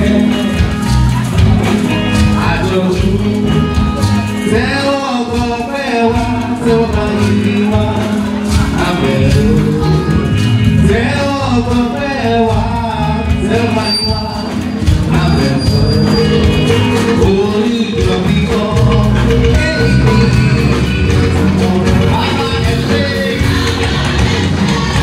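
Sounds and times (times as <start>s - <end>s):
instrumental accompaniment: 0.0s - 25.0s
man singing lead vocals: 0.0s - 25.0s.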